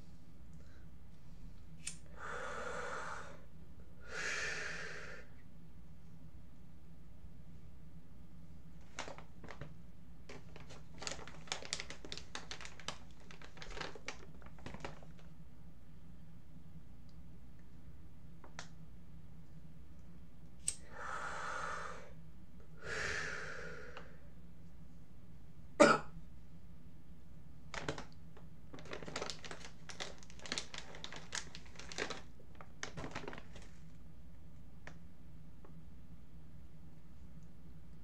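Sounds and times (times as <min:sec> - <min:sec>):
steady low hum: 0:00.0 - 0:38.0
person breathing out: 0:02.0 - 0:05.4, 0:20.8 - 0:22.2, 0:22.8 - 0:24.3
small clicks and rustles: 0:08.8 - 0:15.4, 0:27.7 - 0:34.0.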